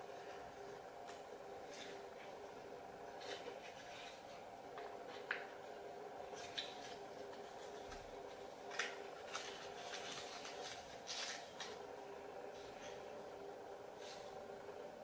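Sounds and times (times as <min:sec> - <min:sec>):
steady low hum: 0:00.0 - 0:15.0
paper crinkling as it is folded: 0:06.2 - 0:11.9.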